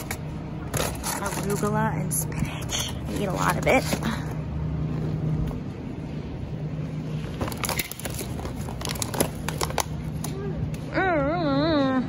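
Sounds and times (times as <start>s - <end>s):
steady low hum: 0.0s - 12.0s
sharp plastic crackles: 7.2s - 10.8s
plastic packaging crinkling: 7.4s - 10.2s.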